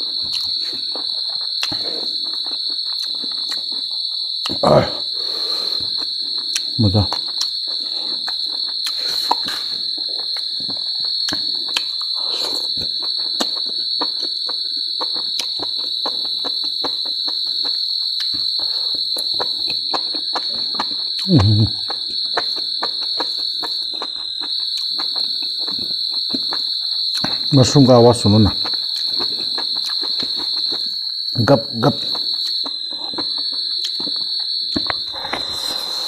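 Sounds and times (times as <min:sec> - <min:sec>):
close-up wet chewing: 0:00.0 - 0:31.1, 0:31.9 - 0:36.0
insects chirring: 0:00.0 - 0:36.0.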